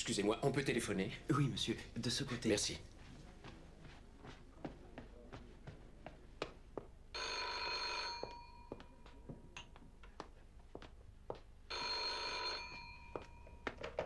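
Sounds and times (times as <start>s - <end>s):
telephone bell ringing: 7.2s - 8.9s, 11.7s - 13.7s.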